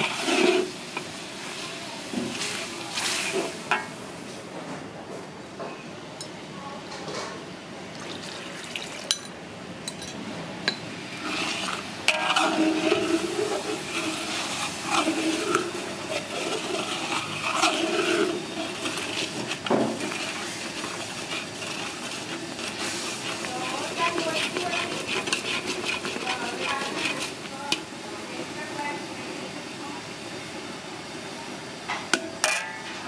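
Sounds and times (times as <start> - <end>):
metal ladle scraping wok: 0.0 - 1.1, 2.3 - 3.9, 11.1 - 27.9, 32.4 - 33.0
sauce bubbling and frying: 0.0 - 4.1, 10.9 - 28.0.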